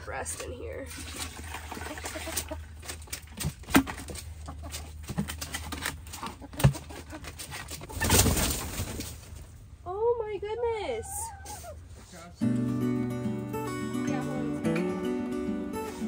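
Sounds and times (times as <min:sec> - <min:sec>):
chickens clucking: 0:01.6 - 0:03.2, 0:03.8 - 0:09.5, 0:10.6 - 0:12.1.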